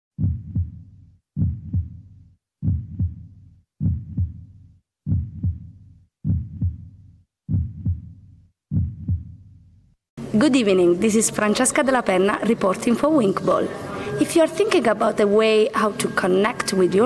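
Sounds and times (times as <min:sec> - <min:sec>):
heartbeat double thump: 0:00.2 - 0:09.6.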